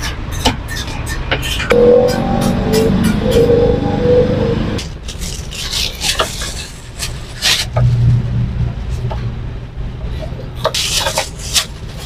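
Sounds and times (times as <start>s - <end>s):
motorbike and car traffic: 0.0s - 5.5s
background music: 1.7s - 4.8s
low engine hum: 1.7s - 5.1s.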